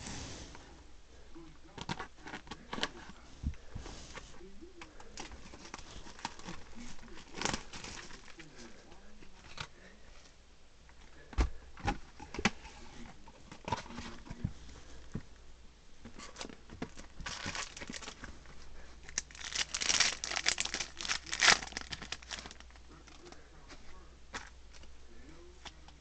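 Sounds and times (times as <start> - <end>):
plastic and foil crinkling: 5.0 - 9.9, 16.2 - 23.7.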